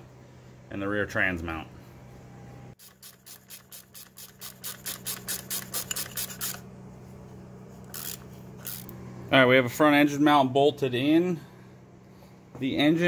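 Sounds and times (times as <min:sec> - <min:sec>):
steady low hum: 0:00.0 - 0:13.0
socket ratchet clicking: 0:02.8 - 0:06.6, 0:07.9 - 0:08.9.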